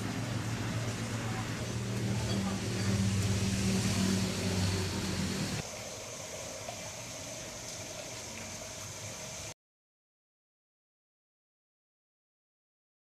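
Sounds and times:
engine humming: 0.0 - 5.8
steady hiss: 0.0 - 9.6.

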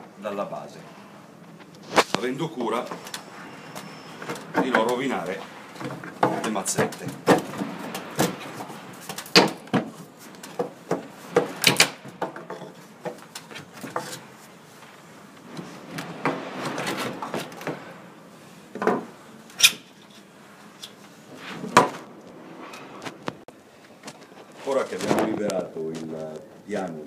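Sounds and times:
wood rubbing and scraping: 0.9 - 27.0
wooden knocks and cracks: 5.8 - 14.3.

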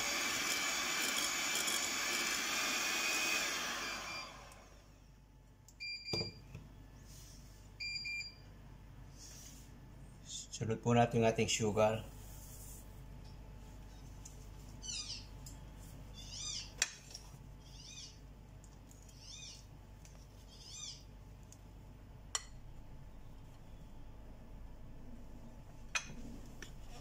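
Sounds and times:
small animal high calls: 20.5 - 21.1.

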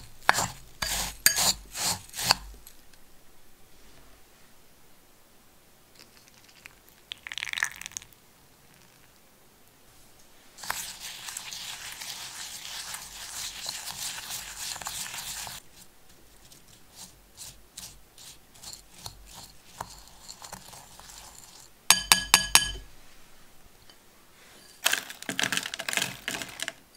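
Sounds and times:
spoon scraping crumbs in a bowl: 0.0 - 2.5, 10.6 - 22.8.

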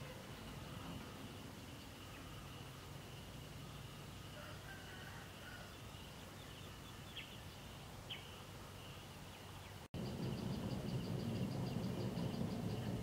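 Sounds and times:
high insect drone: 0.0 - 9.1, 10.0 - 13.0
rapid pulsing chirp: 9.9 - 13.0
low rumble: 10.0 - 13.0.

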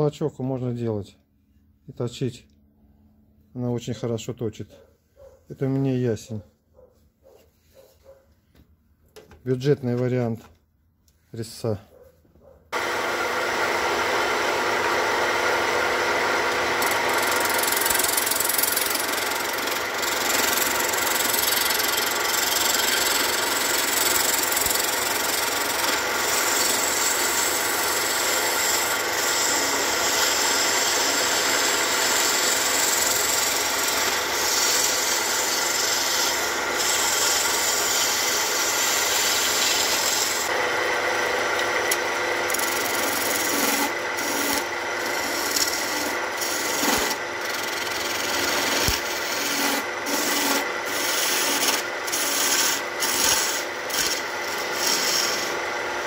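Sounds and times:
chisel cutting spinning wood: 12.8 - 56.0
lathe motor hum: 12.8 - 56.0.

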